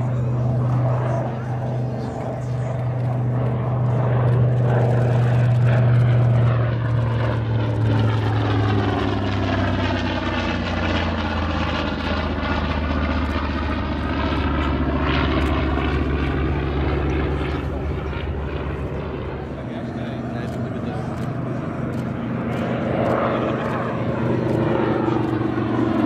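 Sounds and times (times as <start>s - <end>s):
propeller aircraft engine droning: 0.0s - 26.0s.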